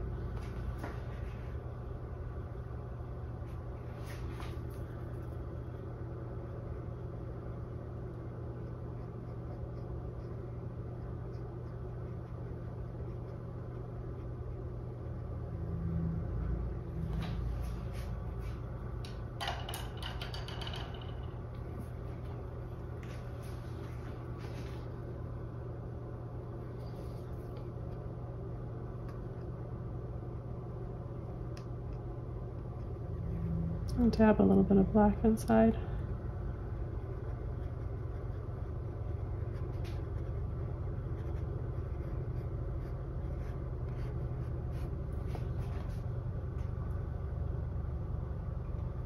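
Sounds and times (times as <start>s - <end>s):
low room hum: 0.0s - 49.0s
low rumble: 14.4s - 19.4s.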